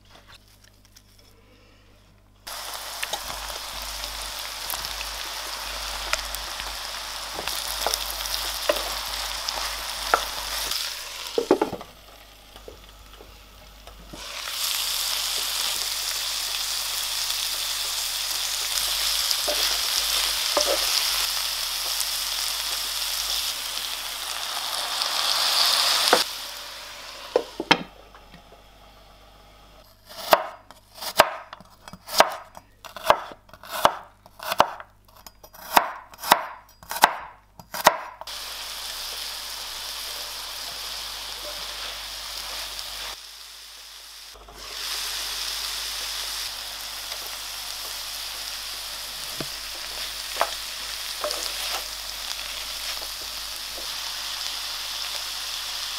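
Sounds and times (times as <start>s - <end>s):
vegetables sizzling in a frying pan: 2.5s - 29.9s, 38.2s - 55.9s
wooden spatula stirring vegetables: 3.0s - 14.4s, 17.6s - 23.5s, 45.7s - 54.0s
knife chopping on wooden board: 30.2s - 31.5s, 35.6s - 38.2s.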